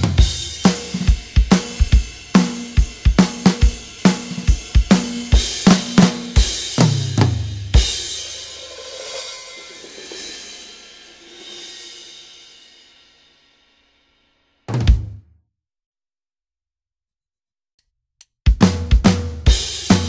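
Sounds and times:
drum hits: 0:00.0 - 0:10.5, 0:14.7 - 0:15.2
crash cymbal ringing: 0:08.0 - 0:14.6.

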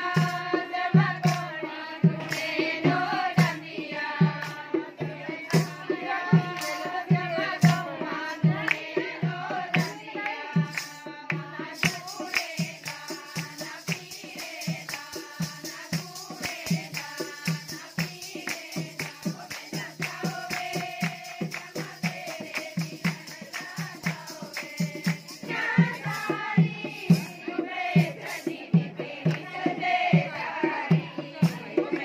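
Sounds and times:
steady drum beat: 0:00.0 - 0:32.0
women singing folk song: 0:00.0 - 0:32.0
hand clapping: 0:02.2 - 0:02.6, 0:04.4 - 0:04.6, 0:07.6 - 0:07.8, 0:08.6 - 0:08.9, 0:09.7 - 0:26.3
sharp claps or jingles: 0:02.2 - 0:02.8, 0:09.7 - 0:26.3.

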